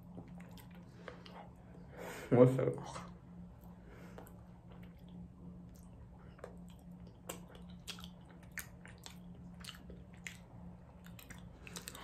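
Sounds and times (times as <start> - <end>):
faint steady hum: 0.0 - 12.0
crunchy snack chewing: 6.3 - 12.0.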